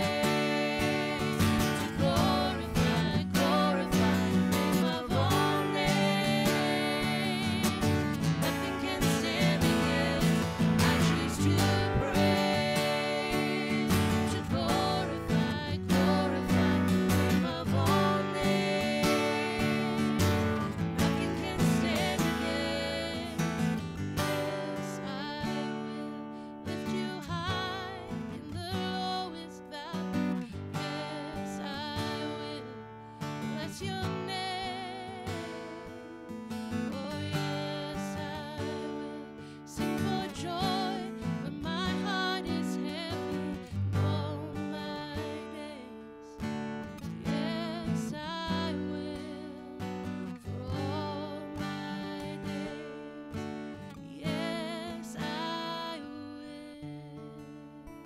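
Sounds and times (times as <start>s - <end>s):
man singing: 0.0s - 20.3s, 21.0s - 23.4s
woman singing: 0.0s - 57.7s
strummed acoustic guitar: 0.0s - 58.0s.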